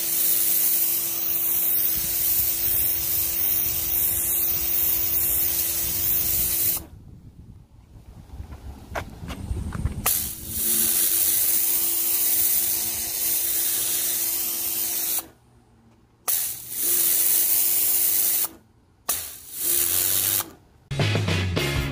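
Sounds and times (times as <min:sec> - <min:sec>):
pressure washer water jet hissing: 0:00.0 - 0:06.9, 0:10.1 - 0:15.3, 0:16.3 - 0:20.5.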